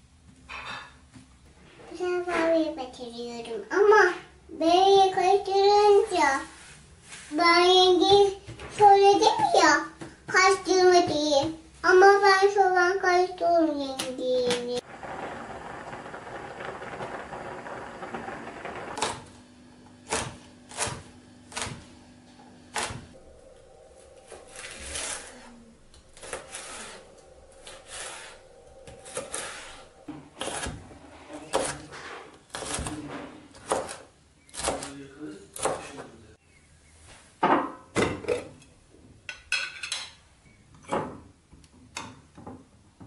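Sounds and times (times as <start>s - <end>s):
knife chopping on cutting board: 20.1s - 22.0s.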